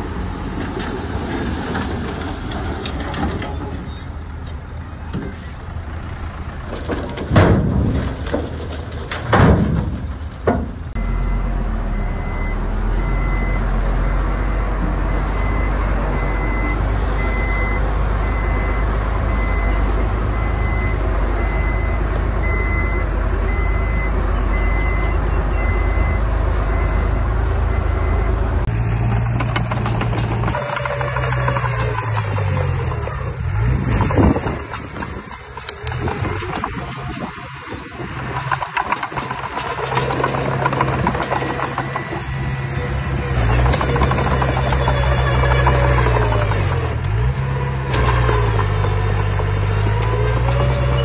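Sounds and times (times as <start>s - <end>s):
heavy machine engine under load: 0.0s - 51.0s
reversing alarm beeping: 11.0s - 28.7s.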